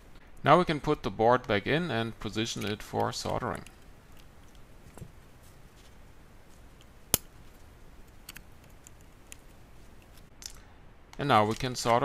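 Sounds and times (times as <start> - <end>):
tweezers handling small parts: 2.4 - 5.2, 6.5 - 10.6.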